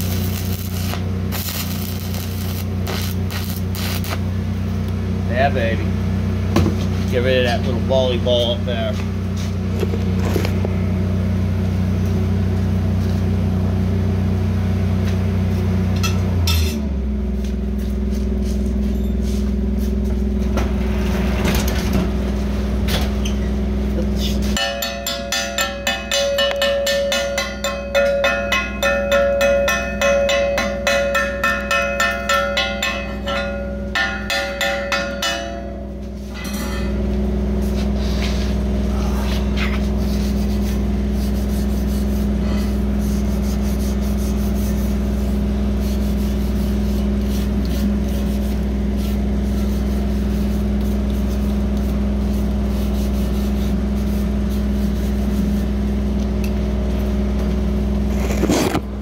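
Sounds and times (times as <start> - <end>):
low machine drone: 0.0 - 59.0
hammer striking metal: 24.6 - 37.3.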